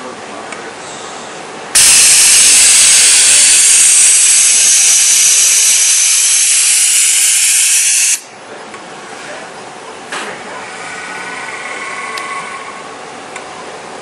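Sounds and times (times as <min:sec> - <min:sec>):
compressed air hissing: 0:01.8 - 0:08.3.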